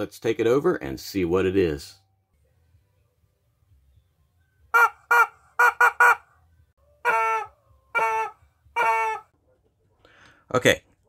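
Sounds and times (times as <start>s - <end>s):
rubber chicken toy squawks: 4.7s - 6.4s, 7.0s - 9.3s.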